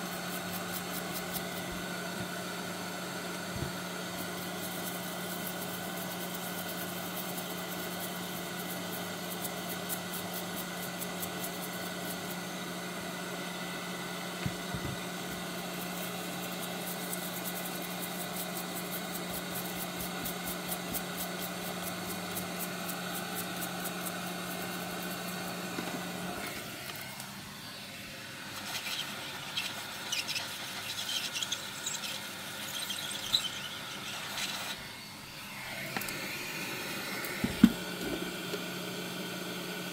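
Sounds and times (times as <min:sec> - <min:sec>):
hot air fan humming and hissing: 0:00.0 - 0:39.9
tools knocking on bench mat: 0:14.4 - 0:15.0, 0:37.4 - 0:38.2.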